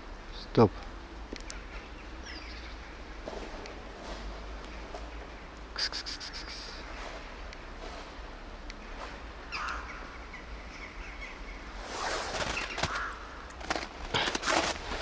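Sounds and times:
rustling and scuffing: 0:03.2 - 0:05.2, 0:06.9 - 0:08.3, 0:11.8 - 0:15.0.

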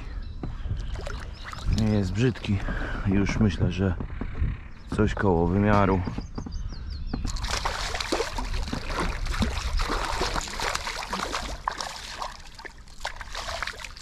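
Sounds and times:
fish splashing in water: 0:07.3 - 0:14.0.

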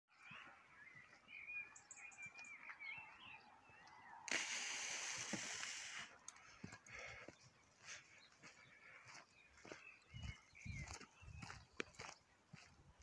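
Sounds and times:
faint birdsong: 0:00.1 - 0:13.0
loud hissing noise: 0:04.3 - 0:06.0.

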